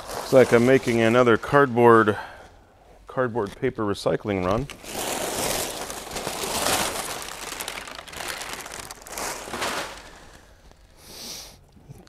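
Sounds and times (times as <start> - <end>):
packing paper crinkling: 4.5 - 11.0.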